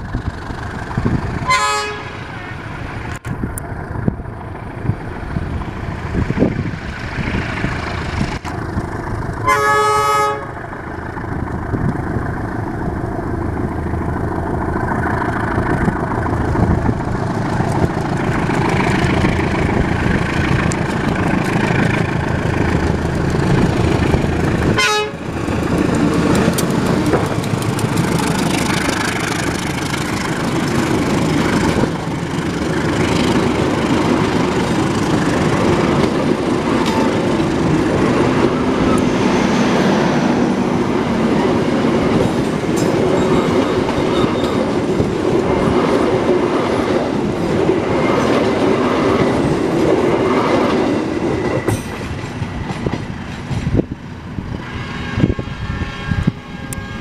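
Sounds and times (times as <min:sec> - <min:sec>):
locomotive engine rumble: 0:00.0 - 0:54.6
locomotive horn: 0:01.4 - 0:02.5, 0:09.4 - 0:10.6, 0:24.7 - 0:25.3, 0:54.5 - 0:57.0.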